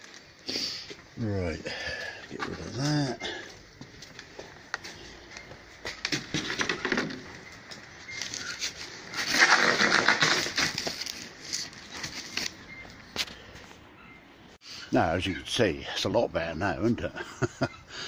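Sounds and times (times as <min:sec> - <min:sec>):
cardboard boxes being handled: 0:08.2 - 0:12.6.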